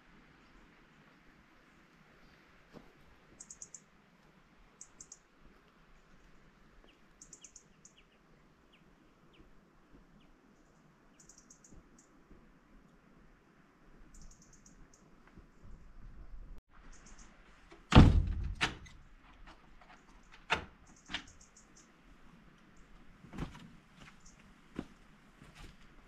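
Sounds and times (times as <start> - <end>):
soft lower bird chirps: 3.3 - 3.9, 4.7 - 5.3, 5.9 - 12.2, 14.0 - 15.9, 16.8 - 17.4, 20.0 - 22.0, 24.2 - 24.5
high bird chirps: 3.4 - 3.8, 7.2 - 8.1, 11.2 - 12.1, 14.1 - 15.1, 16.9 - 17.3.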